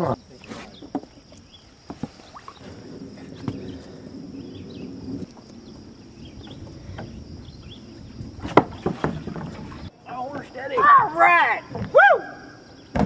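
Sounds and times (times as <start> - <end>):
insect hum: 0.0 - 13.0
wooden platform rubbing and sloshing: 0.3 - 5.5, 8.0 - 9.9.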